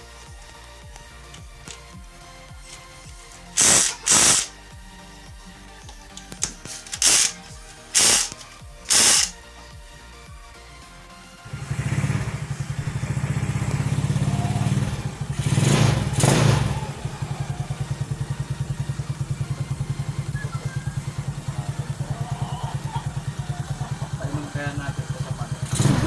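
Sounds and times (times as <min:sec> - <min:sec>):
scooter engine revving: 0:01.4 - 0:04.6, 0:06.2 - 0:09.4, 0:11.4 - 0:26.0
scooter engine starting and idling: 0:11.4 - 0:26.0.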